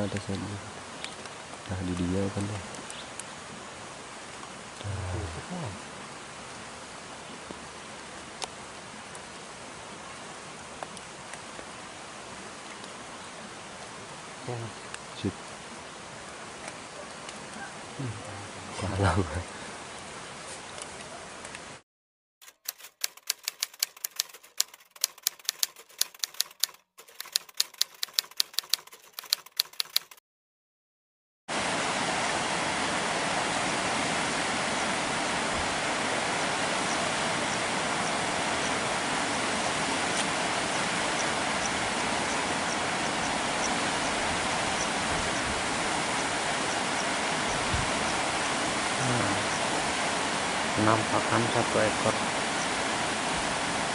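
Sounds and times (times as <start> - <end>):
typewriter keys clicking: 22.4 - 30.2
river rushing: 31.5 - 53.9.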